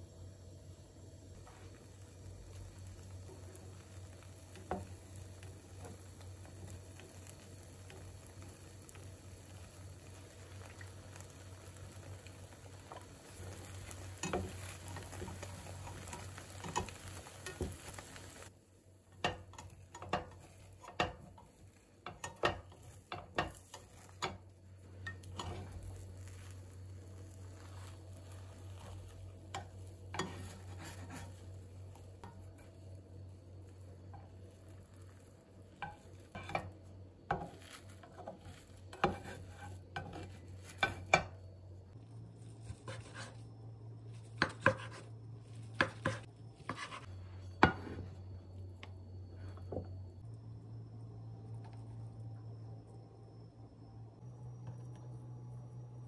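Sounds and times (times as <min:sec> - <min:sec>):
food sizzling in a frying pan: 0:00.0 - 0:52.6
sharp utensil clicks and taps: 0:14.2 - 0:17.7.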